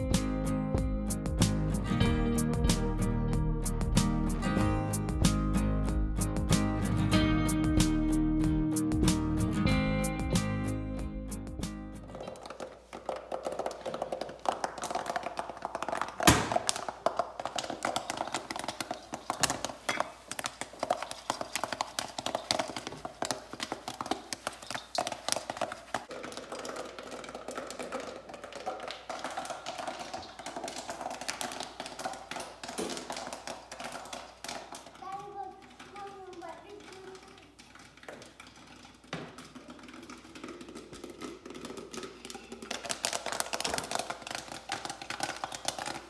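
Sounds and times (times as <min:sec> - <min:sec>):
popcorn rattling in metal pan: 0:12.1 - 0:46.0.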